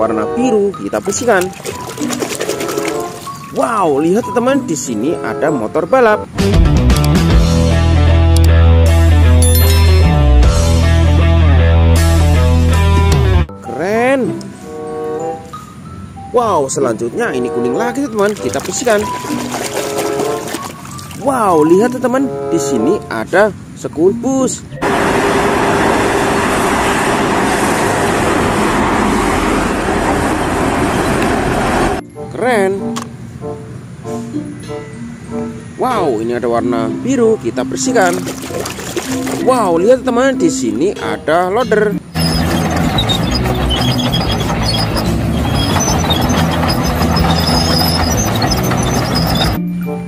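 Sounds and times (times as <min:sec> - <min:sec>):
cars going by: 0:24.7 - 0:32.0, 0:42.0 - 0:49.6
bulldozer diesel engine under load: 0:24.8 - 0:32.0, 0:42.2 - 0:49.6
minibus driving past: 0:24.8 - 0:32.0, 0:42.1 - 0:49.7
steel tracks squealing: 0:24.8 - 0:32.0, 0:42.0 - 0:49.6.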